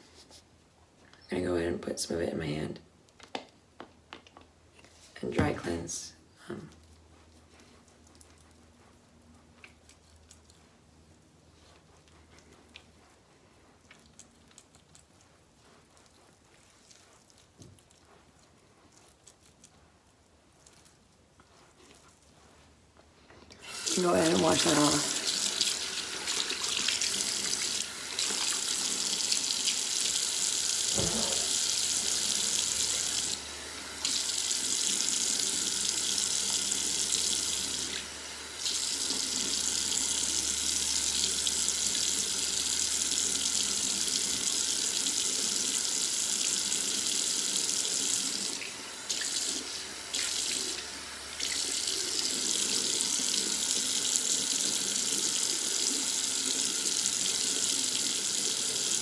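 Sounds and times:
sink faucet running: 0:23.6 - 0:59.0.

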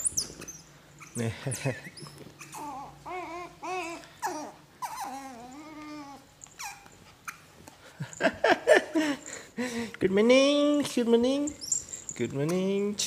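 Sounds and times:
puppy whining: 0:00.0 - 0:08.4, 0:11.4 - 0:12.3.

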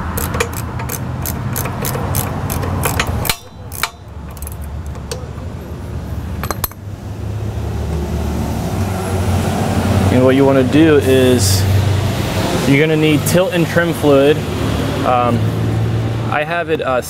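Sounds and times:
socket ratchet clicking: 0:00.0 - 0:05.4.

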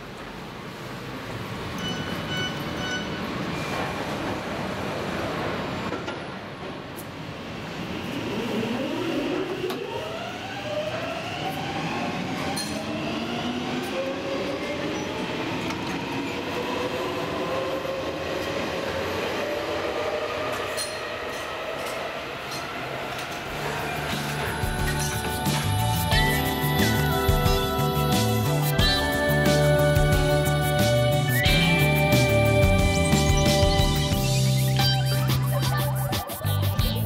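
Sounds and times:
train traction motors whining: 0:07.8 - 0:34.9.

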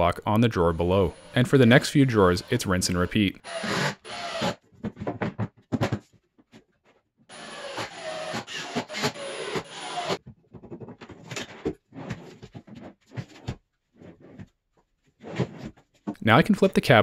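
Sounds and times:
cordless drill whining: 0:01.1 - 0:04.6, 0:07.3 - 0:10.2.

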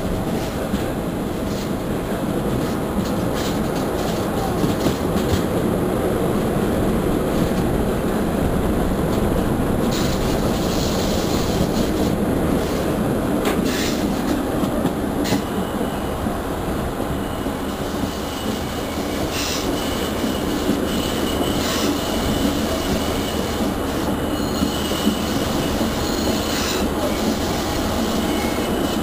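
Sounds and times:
rail joint clicks: 0:00.0 - 0:05.8, 0:06.4 - 0:07.9, 0:08.9 - 0:29.0
train wheels rumbling on rails: 0:00.0 - 0:29.0
brief high hiss: 0:13.6 - 0:14.1.

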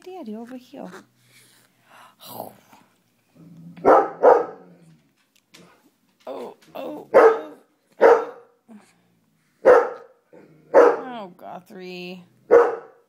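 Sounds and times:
dog barking: 0:03.8 - 0:04.6, 0:07.1 - 0:08.6, 0:09.6 - 0:11.1, 0:12.5 - 0:13.0.

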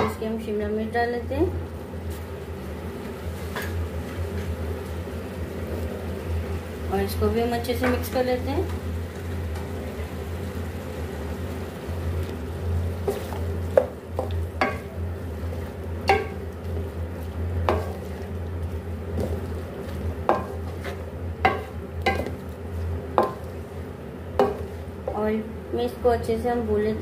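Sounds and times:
wooden spatula scraping a pan: 0:12.9 - 0:23.8, 0:24.4 - 0:25.2
spatula knocking against pan: 0:13.1 - 0:14.9, 0:16.0 - 0:16.5, 0:17.6 - 0:18.1, 0:20.2 - 0:22.4, 0:23.1 - 0:23.5, 0:24.4 - 0:25.2.

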